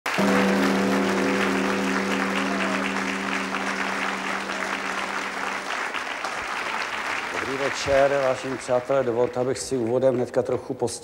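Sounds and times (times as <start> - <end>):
audience applause: 0.0 - 11.0
gong ringing: 0.1 - 6.3.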